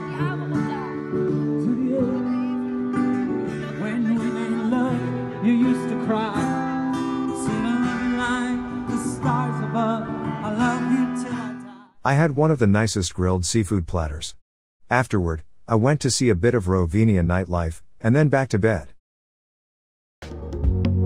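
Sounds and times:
person singing: 0.0s - 11.9s
acoustic guitar: 0.0s - 12.2s.

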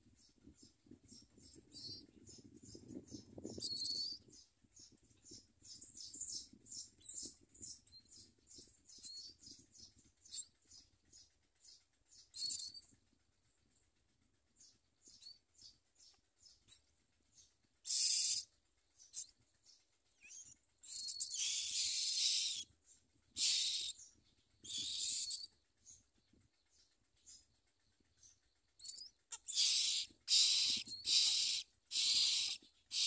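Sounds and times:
nestlings begging with hissing calls: 17.8s - 18.5s, 20.2s - 22.7s, 23.4s - 25.5s, 28.8s - 33.0s.

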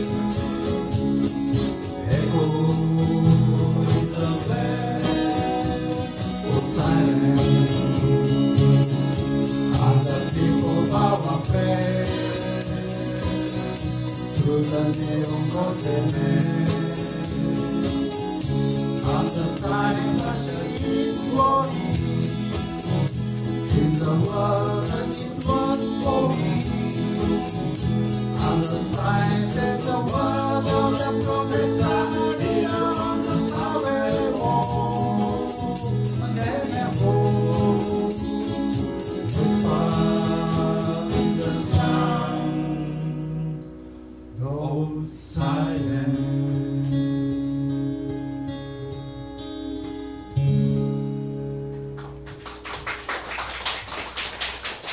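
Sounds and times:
tambourine shaken: 0.0s - 42.7s, 52.4s - 54.9s
acoustic guitars strummed: 0.0s - 54.9s
voices singing in harmony: 1.8s - 43.5s, 45.2s - 46.5s.

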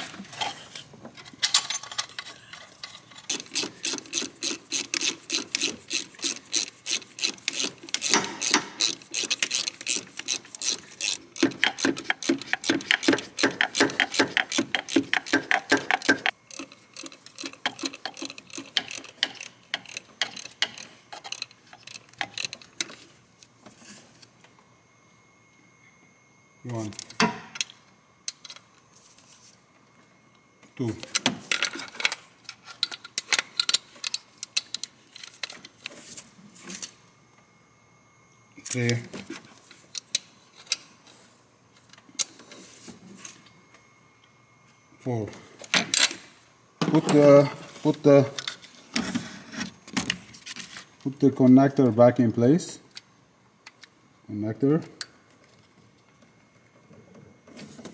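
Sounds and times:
ratchet wrench clicking: 3.2s - 22.6s.

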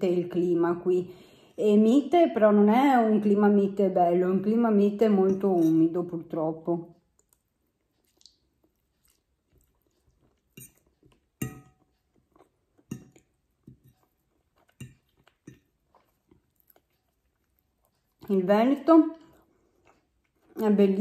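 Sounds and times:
person chewing wetly: 7.0s - 18.5s, 19.1s - 21.0s.

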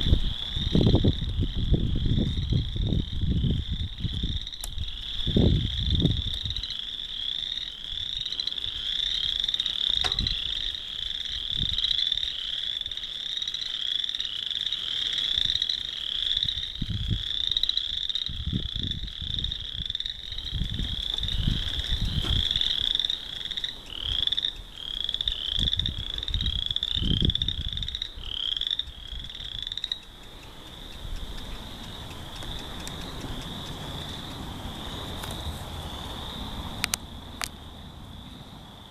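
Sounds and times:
chorus of frogs calling: 0.0s - 38.9s
low thumps and rumbles: 18.4s - 22.8s.

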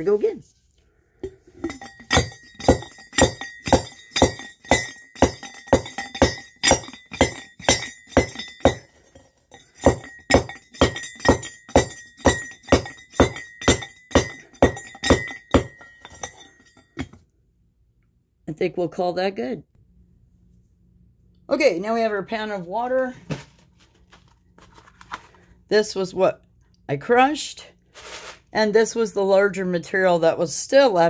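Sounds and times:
steel pounder clinking in tube: 1.2s - 17.2s.

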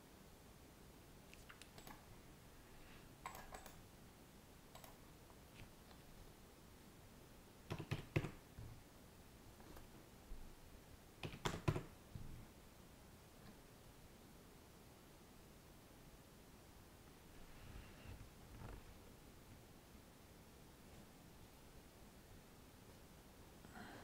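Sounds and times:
faint keyboard typing: 1.3s - 2.1s, 3.1s - 3.9s, 4.7s - 6.2s, 7.6s - 8.6s, 9.6s - 10.0s, 11.2s - 12.0s.

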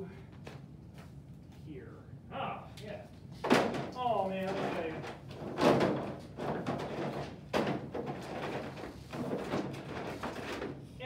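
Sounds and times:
objects knocking and clattering: 3.4s - 10.8s.

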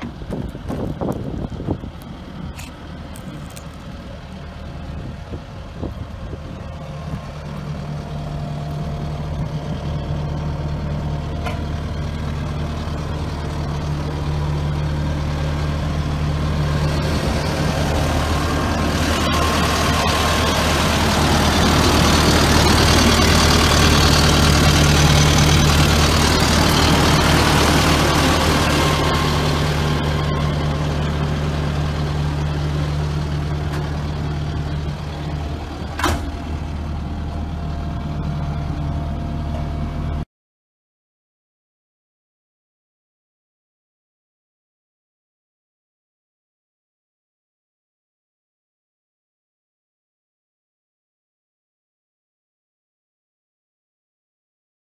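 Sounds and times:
diesel engine droning: 0.0s - 40.3s.

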